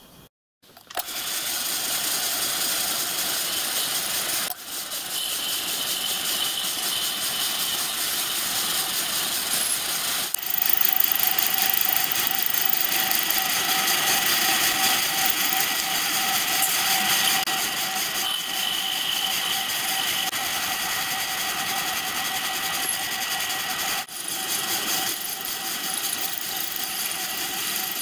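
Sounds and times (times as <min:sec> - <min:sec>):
milling machine cutting metal: 0:09.7 - 0:28.0
motor whine: 0:10.3 - 0:28.0.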